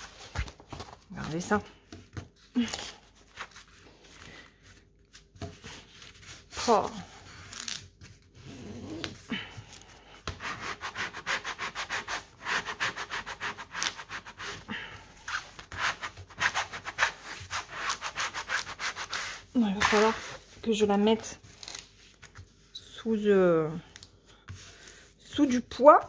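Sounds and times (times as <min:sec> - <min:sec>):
plastic scraper scraping canvas: 0:10.3 - 0:20.4
hands rubbing canvas: 0:10.3 - 0:20.6.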